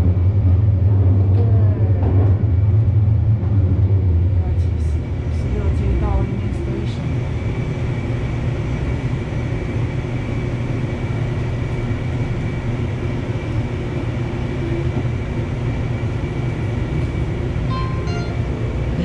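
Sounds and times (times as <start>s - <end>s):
train low rumble: 0.0s - 19.0s
faint high whine: 17.7s - 18.8s.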